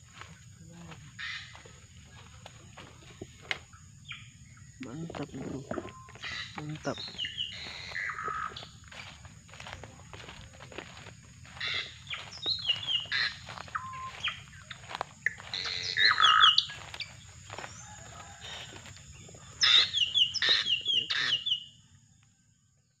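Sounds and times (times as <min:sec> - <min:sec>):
footsteps through undergrowth: 0:00.0 - 0:04.1, 0:04.8 - 0:21.4
bird sharp falling calls: 0:05.4 - 0:08.7, 0:10.9 - 0:18.4, 0:19.6 - 0:21.6.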